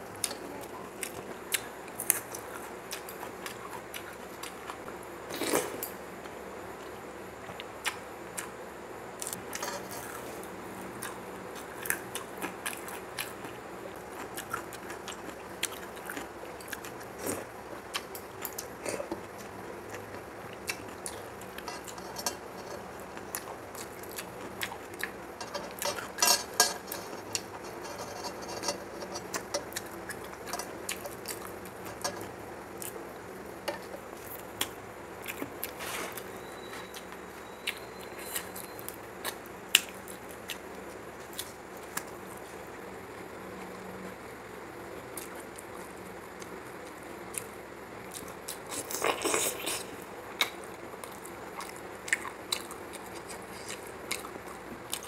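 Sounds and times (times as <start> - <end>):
chewing: 0.2 - 5.8, 9.2 - 33.0, 33.7 - 42.6, 45.1 - 55.0
fingers mixing rice on metal plate: 21.5 - 23.3, 25.4 - 32.4.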